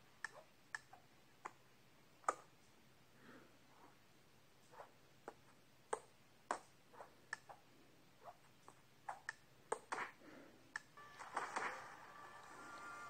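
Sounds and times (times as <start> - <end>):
faint irregular clicks: 0.2 - 1.6.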